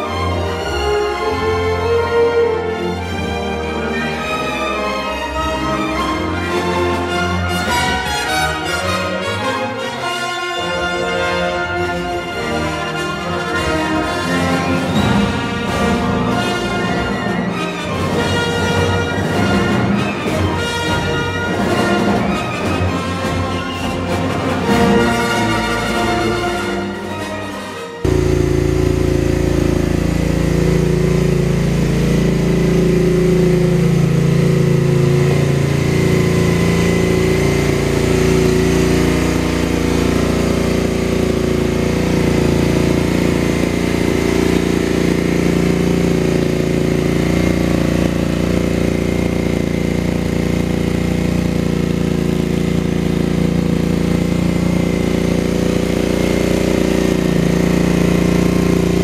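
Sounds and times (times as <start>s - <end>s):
dune buggy engine idling: 28.0s - 59.0s.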